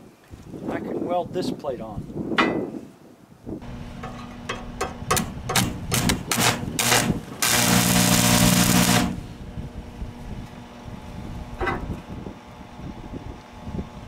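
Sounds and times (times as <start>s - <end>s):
welder low hum: 3.6s - 14.0s
welding arc crackling: 5.2s - 9.4s.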